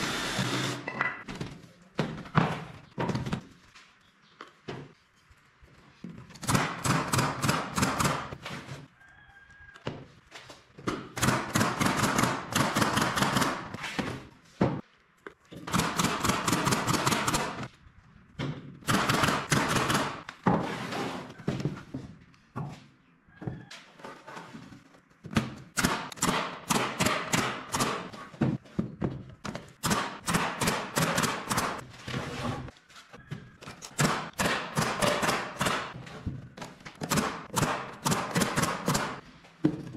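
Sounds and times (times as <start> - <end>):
nail gun firing: 6.4 - 8.3, 11.2 - 13.7, 15.7 - 17.7, 18.8 - 20.2, 25.8 - 28.1, 29.8 - 31.8, 34.0 - 36.0, 37.0 - 39.2.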